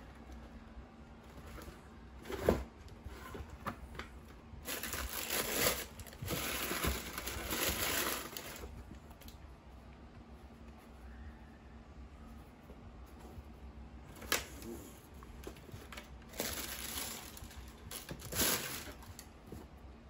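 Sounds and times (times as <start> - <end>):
tissue paper crinkling: 4.6 - 8.8, 15.9 - 19.3.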